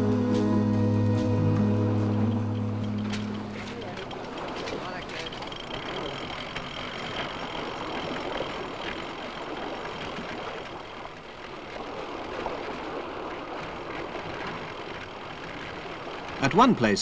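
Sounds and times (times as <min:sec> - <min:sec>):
continuous noisy wash: 0:00.0 - 0:17.0
engine running steadily: 0:00.0 - 0:17.0.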